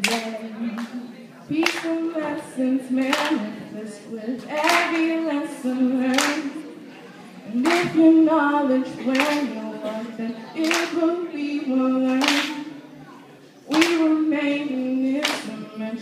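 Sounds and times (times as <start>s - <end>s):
hand clapping: 0.0s - 1.0s, 1.6s - 2.0s, 3.0s - 3.4s, 4.5s - 5.1s, 6.1s - 6.5s, 7.6s - 8.0s, 9.1s - 9.5s, 10.6s - 11.0s, 12.2s - 12.7s, 13.7s - 14.2s, 15.2s - 15.6s
woman singing: 0.0s - 6.8s, 7.5s - 12.8s, 13.7s - 16.0s.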